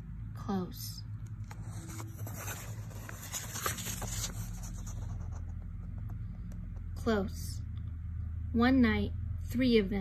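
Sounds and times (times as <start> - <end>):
low steady hum: 0.0 - 10.0
paper page rustling: 1.5 - 6.2.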